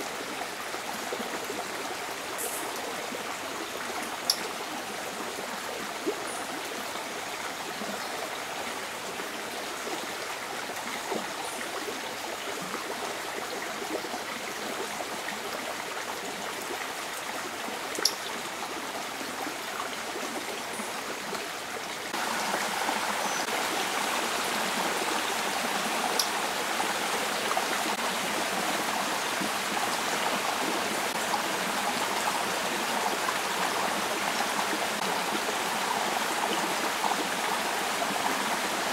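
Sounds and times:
river water rushing: 8.4s - 38.9s.

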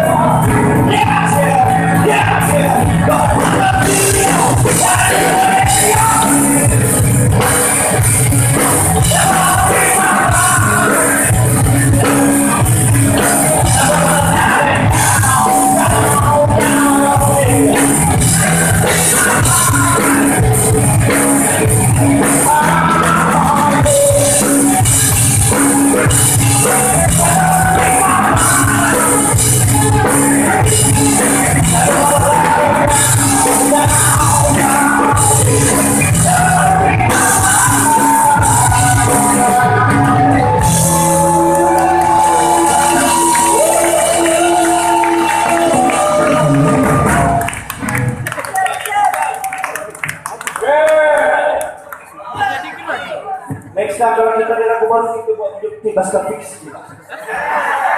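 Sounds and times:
live rock band: 0.0s - 48.8s
crowd shouting: 23.8s - 47.6s, 52.2s - 53.6s.

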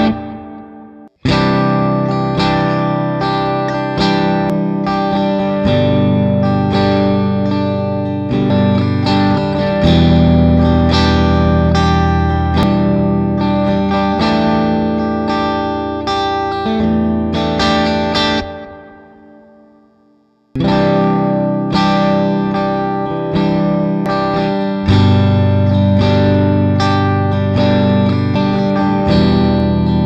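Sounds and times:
electric guitar chords: 0.0s - 30.0s.

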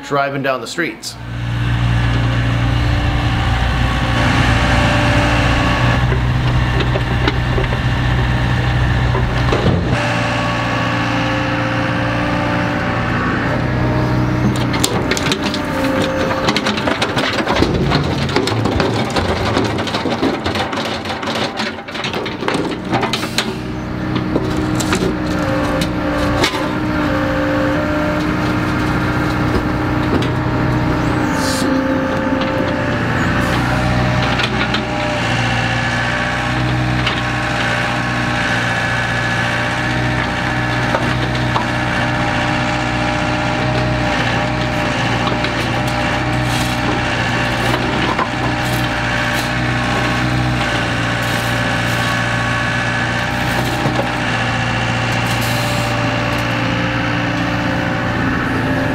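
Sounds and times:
excavator engine running: 0.0s - 58.9s
rocks clattering into truck box: 14.5s - 26.9s.

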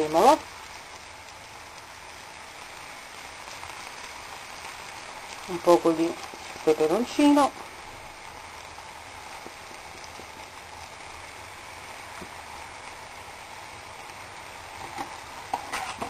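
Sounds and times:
sauce sizzling in a frying pan: 0.0s - 16.0s
faint pops: 9.3s - 10.9s, 12.0s - 12.5s.

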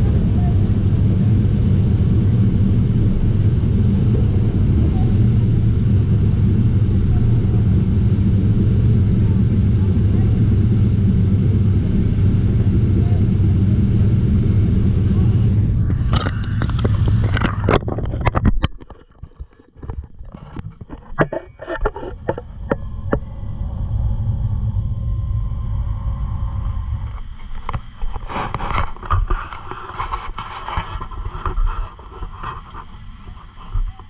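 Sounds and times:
boat engine rumble: 0.0s - 34.0s
wind: 9.1s - 34.0s.

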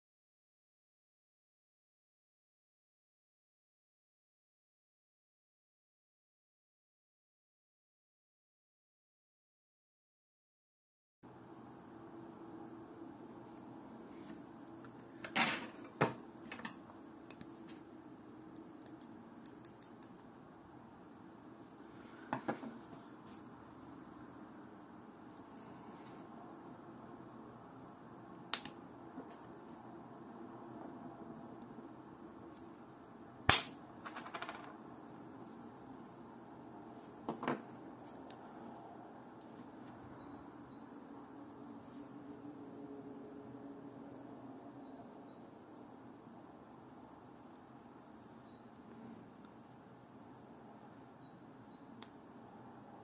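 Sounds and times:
faint hum: 11.3s - 53.0s.

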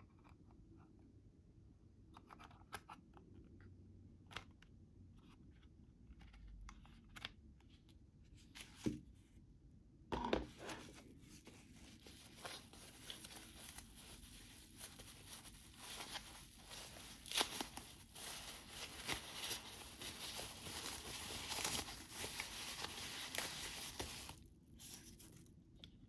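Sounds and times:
hands handling plastic: 10.2s - 26.0s
packing wrap crinkling: 11.3s - 25.6s.

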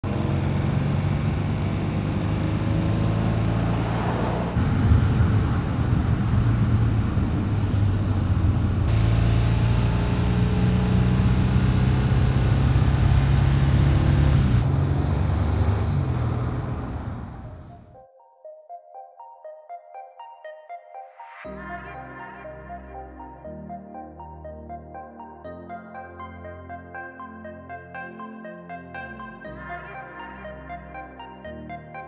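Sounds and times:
car engine and exhaust: 0.0s - 17.9s.

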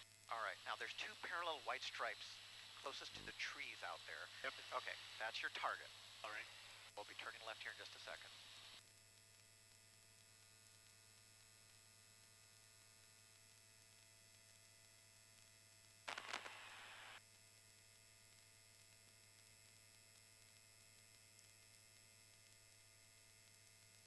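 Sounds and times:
electrical hum: 0.3s - 8.8s
radio static hiss: 0.3s - 8.8s, 16.1s - 17.2s.

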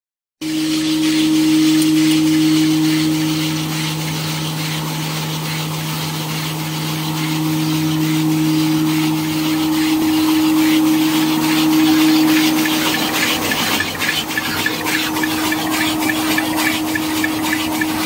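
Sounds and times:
vacuum blower humming: 0.4s - 18.0s
machine clattering: 11.8s - 18.0s.

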